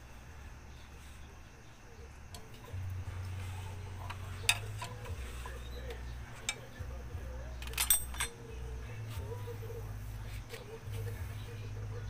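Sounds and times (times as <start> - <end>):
low steady hum: 0.0 - 12.0
steel tool clicking on metal: 4.0 - 5.2, 7.6 - 8.4.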